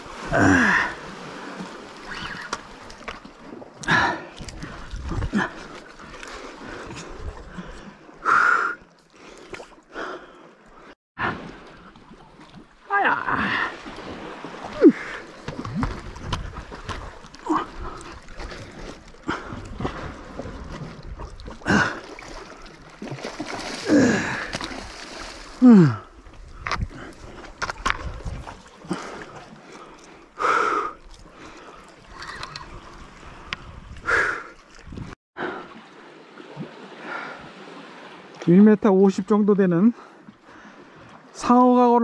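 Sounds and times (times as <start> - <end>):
water splashing: 0.0 - 38.7
person breathing and grunting: 0.3 - 1.0, 21.6 - 22.0, 23.8 - 24.6, 25.6 - 26.2.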